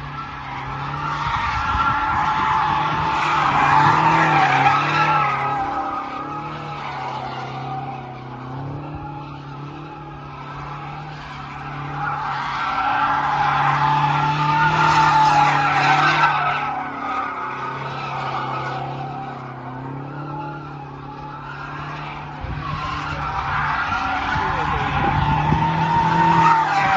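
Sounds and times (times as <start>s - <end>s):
tyres squealing: 0.0s - 26.9s
car engine running under power: 13.0s - 26.8s.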